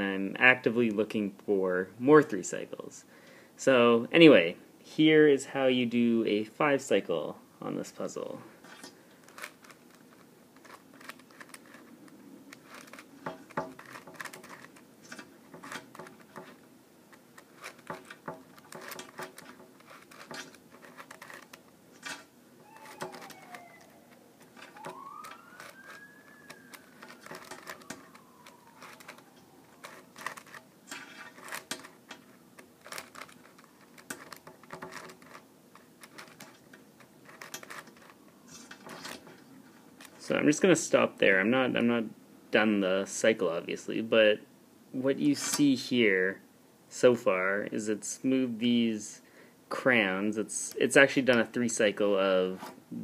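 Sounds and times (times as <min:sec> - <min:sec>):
puzzle pieces clicking and rattling: 0:17.4 - 0:23.3, 0:32.8 - 0:38.2
faint rising and falling tone: 0:22.6 - 0:30.8.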